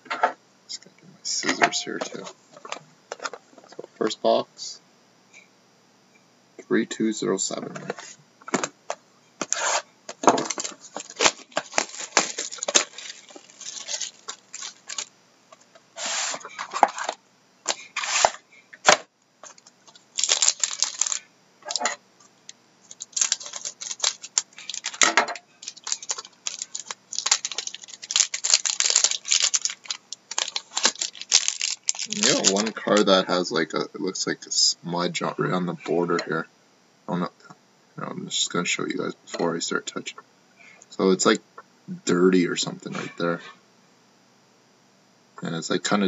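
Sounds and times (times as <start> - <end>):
plastic wrap tearing and crinkling: 9.4 - 15.1, 16.0 - 22.0, 22.8 - 33.0.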